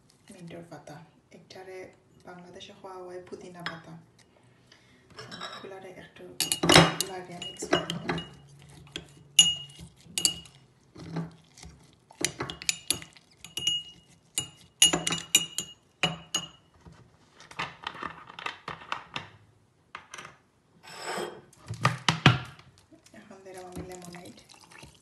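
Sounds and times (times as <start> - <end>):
spoon clinking against glass: 6.4 - 10.6, 12.2 - 16.6.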